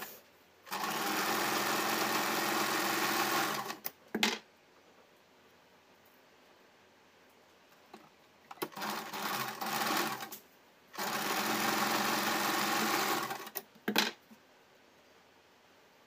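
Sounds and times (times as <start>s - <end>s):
electric sewing machine stitching: 0.7s - 3.8s, 8.6s - 10.4s, 11.0s - 13.6s.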